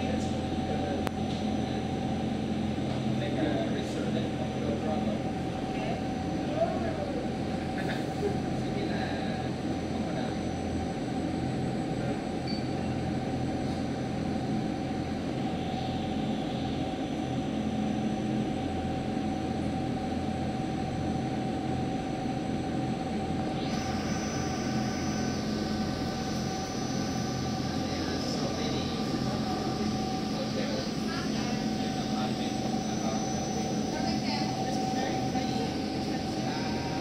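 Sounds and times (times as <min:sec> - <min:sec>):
boat engine drone: 0:00.0 - 0:37.0.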